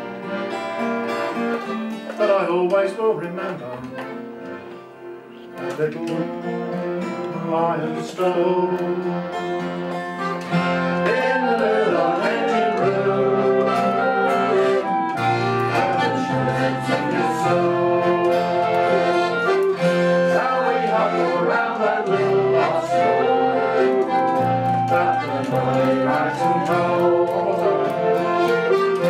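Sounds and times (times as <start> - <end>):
acoustic folk music: 0.0 - 29.0.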